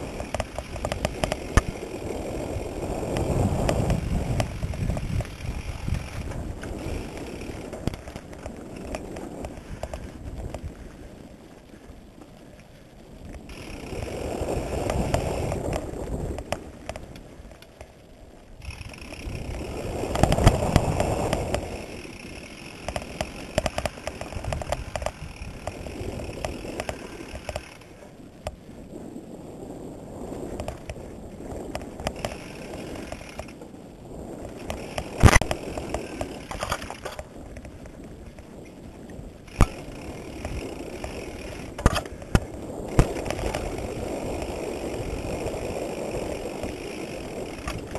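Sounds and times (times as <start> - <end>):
bike clicks and rattles: 0.0 - 28.8, 30.2 - 47.9
rushing of tyres and air: 0.0 - 47.9.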